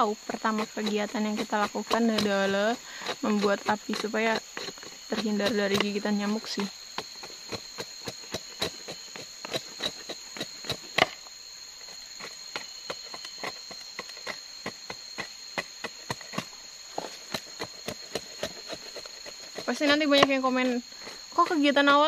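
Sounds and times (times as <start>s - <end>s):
insects droning: 0.0s - 22.0s.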